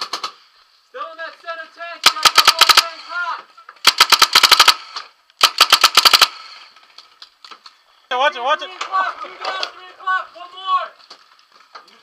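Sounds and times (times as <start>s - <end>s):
paintball marker firing bursts: 2.0s - 3.0s, 3.8s - 6.6s.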